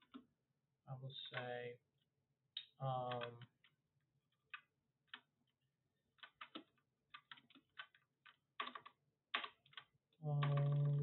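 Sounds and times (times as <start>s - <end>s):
computer keyboard keystrokes: 3.1s - 3.5s, 6.2s - 11.0s.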